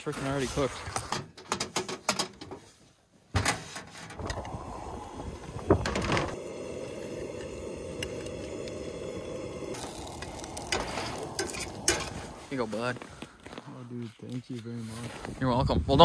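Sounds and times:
gas burner hissing: 4.0s - 13.5s.

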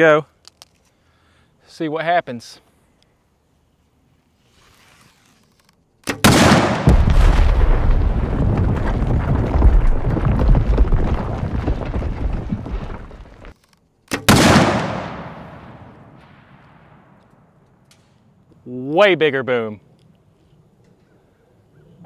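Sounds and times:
explosion blast: 6.2s - 13.3s
rumbling explosion: 6.2s - 13.5s.

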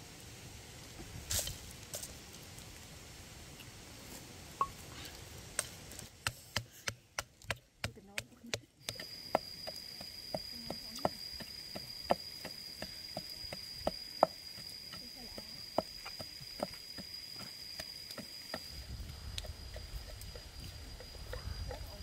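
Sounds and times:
wooden pestle pounding in mortar: 6.2s - 18.8s
high-pitched insect whine: 8.8s - 22.0s.

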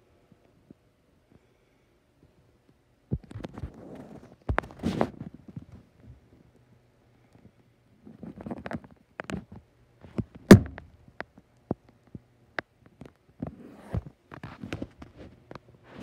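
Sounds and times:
loud thump: 10.5s - 10.9s.

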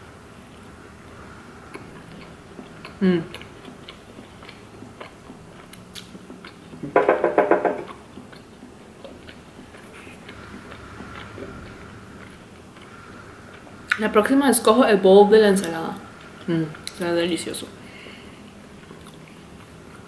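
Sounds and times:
person chewing food: 0.5s - 6.8s, 7.9s - 14.0s, 18.4s - 20.0s.

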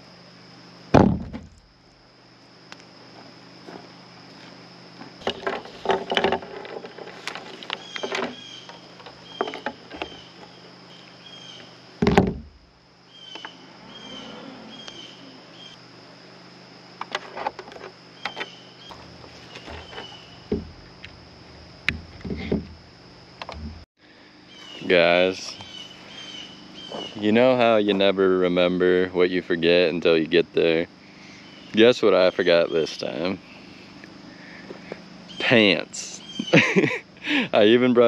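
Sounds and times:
high-pitched insect buzz: 0.0s - 38.0s
heavy thump: 0.9s - 1.7s, 12.0s - 12.7s, 19.6s - 20.9s
objects knocking and clattering: 5.2s - 8.4s
bird chirps: 13.1s - 15.8s, 25.5s - 27.2s, 36.2s - 36.6s.

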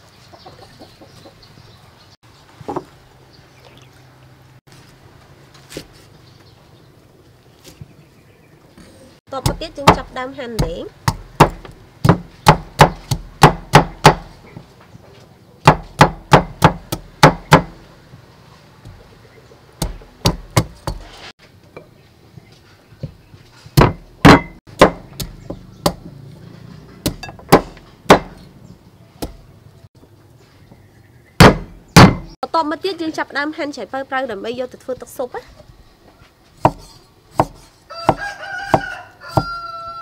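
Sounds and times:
cleaver chopping on wooden block: 9.4s - 14.3s, 15.6s - 17.8s, 19.8s - 21.0s, 23.8s - 26.1s, 27.0s - 28.4s, 31.4s - 32.3s, 36.6s - 39.6s.

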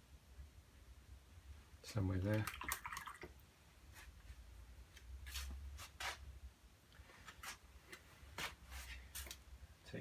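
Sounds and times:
paintbrush swishes on paper: 5.2s - 6.3s.

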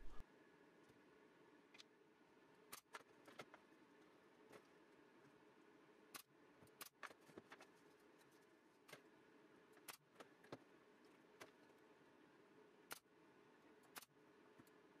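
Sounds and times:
faint steady hum: 0.0s - 6.7s.

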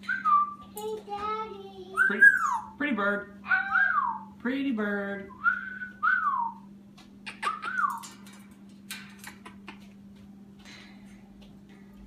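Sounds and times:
steady low hum: 0.0s - 12.0s
parrot whistling: 2.0s - 2.8s, 3.5s - 4.3s, 7.3s - 8.0s.

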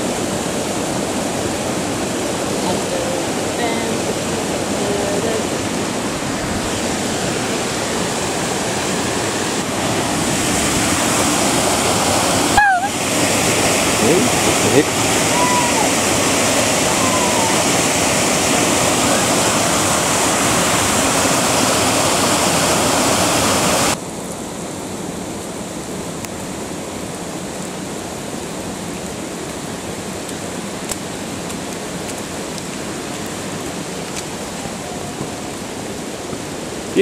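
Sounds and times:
water rushing: 0.0s - 37.0s.

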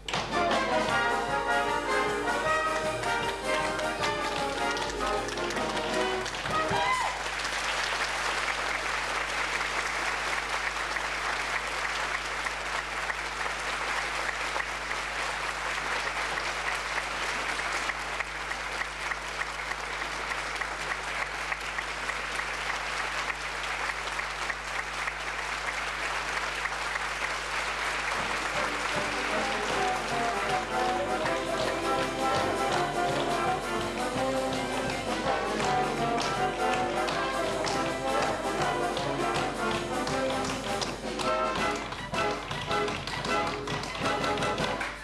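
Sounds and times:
music: 0.0s - 7.0s, 28.2s - 45.0s
audience applauding: 0.0s - 45.0s.

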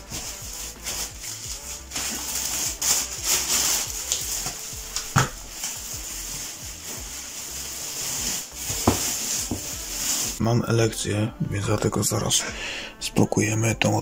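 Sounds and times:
plastic film crinkling: 0.0s - 10.4s.

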